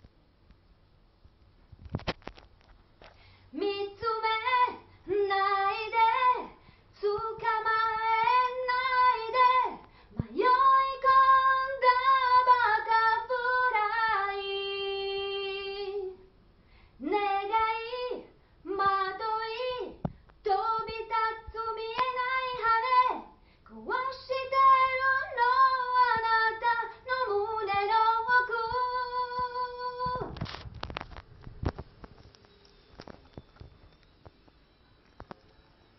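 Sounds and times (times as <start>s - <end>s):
woman singing unaccompanied: 3.5s - 16.2s, 17.0s - 30.4s.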